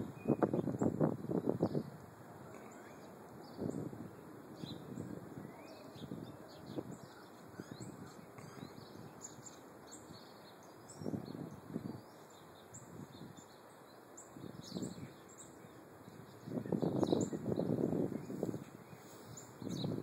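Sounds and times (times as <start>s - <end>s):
low rumbles on microphone: 0.0s - 9.2s, 16.4s - 20.0s
small birds chirping: 0.0s - 20.0s.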